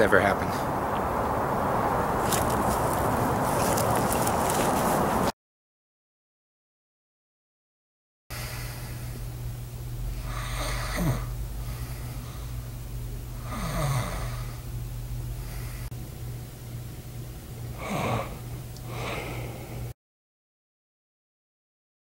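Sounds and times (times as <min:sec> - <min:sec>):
low hum: 0:00.0 - 0:05.3, 0:08.3 - 0:20.0
person snoring: 0:08.4 - 0:09.2, 0:10.0 - 0:12.7, 0:13.3 - 0:14.7, 0:17.7 - 0:20.0.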